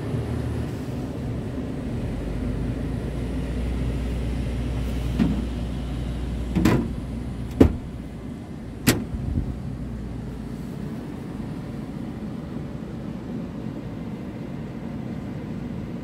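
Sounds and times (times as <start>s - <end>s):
low steady rumble: 0.0s - 16.0s
knocks and thumps in truck cab: 5.1s - 5.6s, 6.5s - 8.0s, 8.8s - 9.5s.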